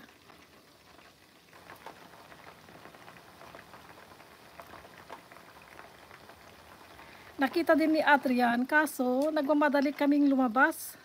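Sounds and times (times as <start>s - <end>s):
oil bubbling and crackling: 0.0s - 11.0s.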